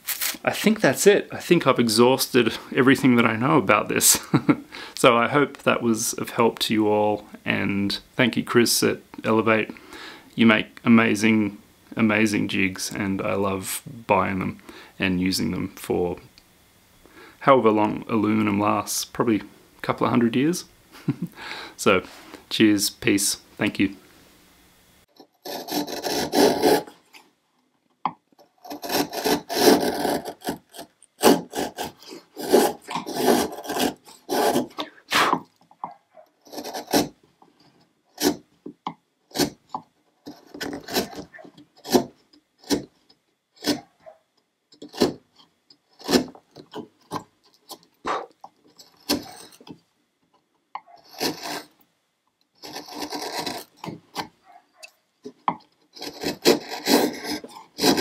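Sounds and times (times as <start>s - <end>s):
chisel scraping wood: 25.2s - 27.0s, 28.4s - 38.5s, 39.3s - 44.2s, 44.8s - 49.8s, 50.8s - 51.8s, 52.6s - 54.4s, 55.3s - 58.0s.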